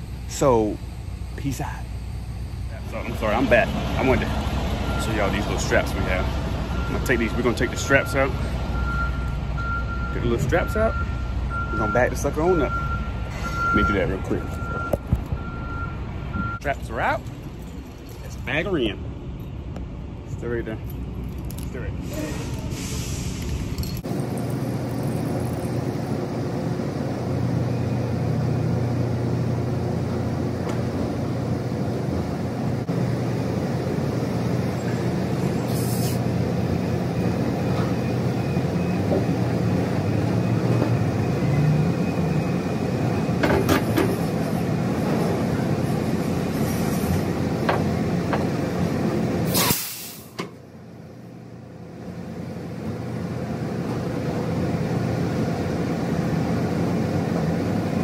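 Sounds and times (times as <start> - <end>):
truck diesel engine running: 0.0 - 18.2, 22.3 - 58.0
air brake hiss: 13.3 - 13.6, 22.0 - 23.7, 35.6 - 36.2, 49.5 - 50.4
short air hisses: 22.0 - 23.7, 35.6 - 36.2, 49.5 - 50.4.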